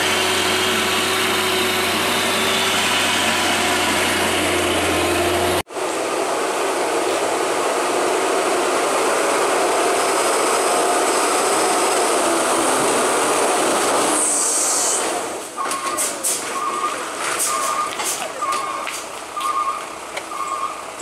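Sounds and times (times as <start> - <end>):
diesel truck engine running: 0.0 - 21.0
air brakes hissing: 14.0 - 19.6
reversing beeps: 15.6 - 20.9.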